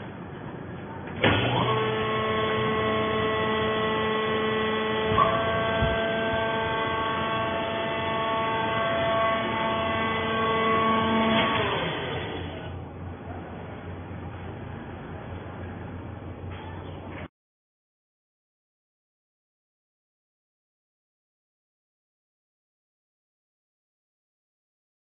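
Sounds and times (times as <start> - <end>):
hydraulic motor and pump whine: 0.0 - 17.2.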